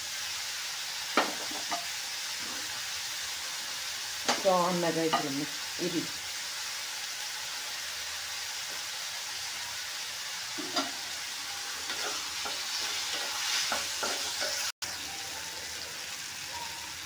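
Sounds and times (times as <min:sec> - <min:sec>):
vegetables sizzling in oil: 0:00.0 - 0:17.0
wooden spatula scraping pan: 0:11.8 - 0:14.7.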